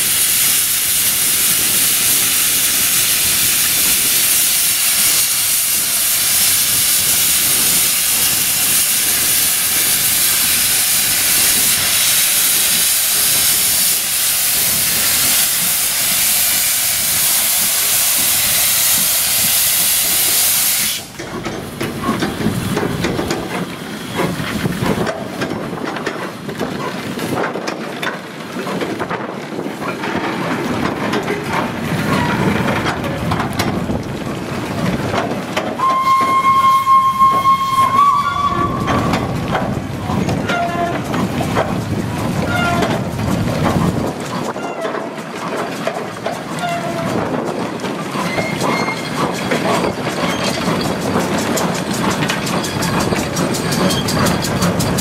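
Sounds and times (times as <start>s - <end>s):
steam hissing: 0.0s - 21.2s
train wagons rumbling and knocking: 0.0s - 55.0s
steam whistle: 35.8s - 39.2s.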